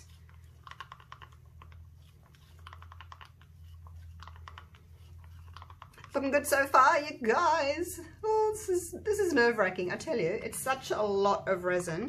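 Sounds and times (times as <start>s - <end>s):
resin stirred in plastic cup: 0.0s - 6.8s
low steady hum: 0.0s - 12.0s.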